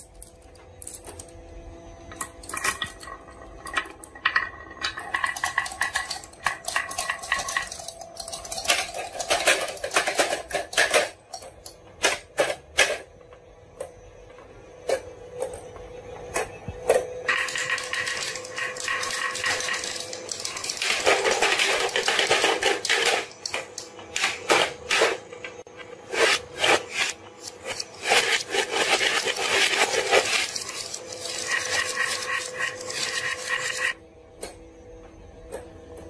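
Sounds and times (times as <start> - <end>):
marbles clattering on plastic: 2.4 - 11.2, 17.3 - 23.8, 26.1 - 34.0.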